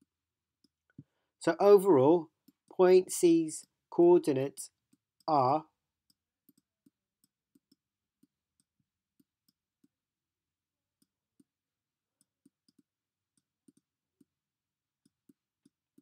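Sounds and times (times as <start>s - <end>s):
stylus tapping tablet: 2.3s - 2.8s, 4.7s - 16.0s.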